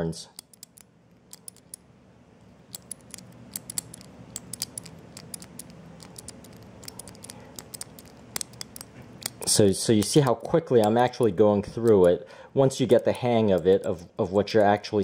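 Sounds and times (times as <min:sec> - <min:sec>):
combination lock clicking: 0:00.3 - 0:01.8, 0:02.7 - 0:11.1, 0:11.7 - 0:12.2, 0:13.4 - 0:14.0.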